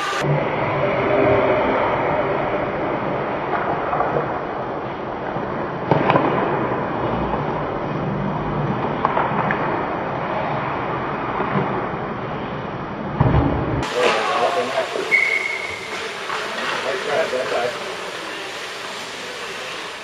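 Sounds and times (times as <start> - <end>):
hockey sticks and puck clacking: 5.3 - 6.7, 8.6 - 12.0, 13.8 - 19.8
hiss of skates on ice: 13.9 - 20.0.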